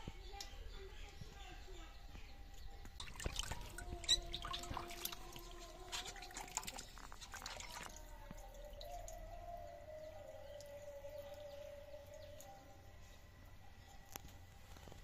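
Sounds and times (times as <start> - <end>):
water splashing in steel bowl: 2.8 - 9.4
faint wavering tone: 7.7 - 15.0.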